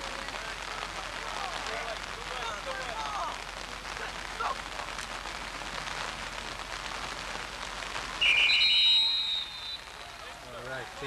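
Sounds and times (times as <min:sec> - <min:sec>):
steady background hiss: 0:00.0 - 0:11.0
whistles blowing: 0:08.2 - 0:10.2.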